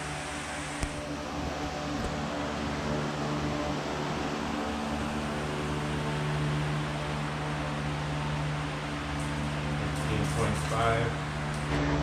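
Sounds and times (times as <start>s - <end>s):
fan-like machine hum: 0.0s - 12.0s.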